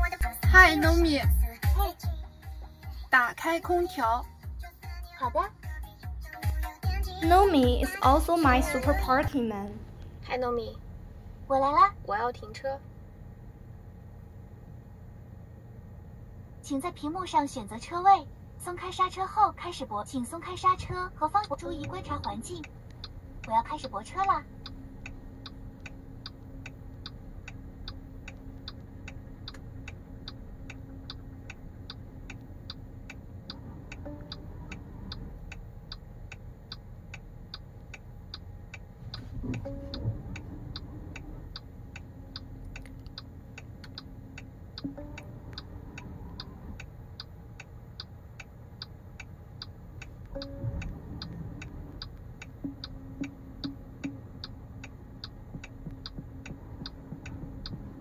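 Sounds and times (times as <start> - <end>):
turn signal ticking: 0.0 - 58.0
parking sensor tone and beeps: 39.2 - 41.7, 44.8 - 46.5, 50.3 - 57.9.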